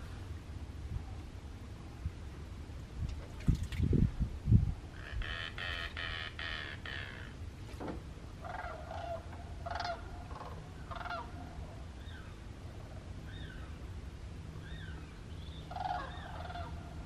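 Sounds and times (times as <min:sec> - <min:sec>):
wild birds calling: 0:04.9 - 0:07.5, 0:08.3 - 0:17.0.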